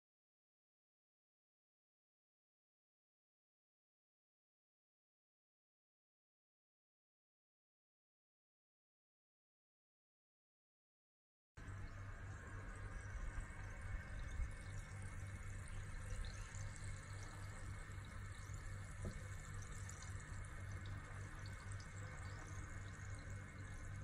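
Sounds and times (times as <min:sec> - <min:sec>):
low steady hum: 0:11.6 - 0:24.0
cola fizzing over ice: 0:12.9 - 0:24.0.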